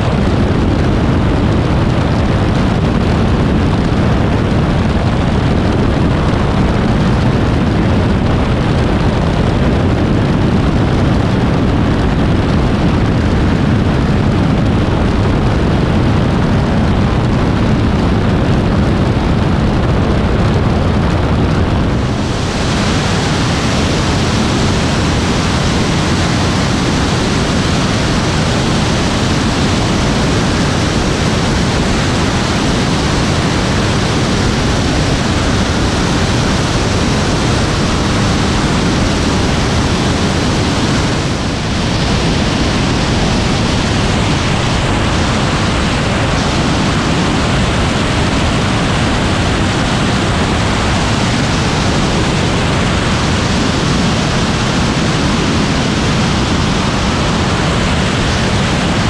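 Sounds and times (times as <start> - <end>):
rush of airflow: 0.0 - 59.0.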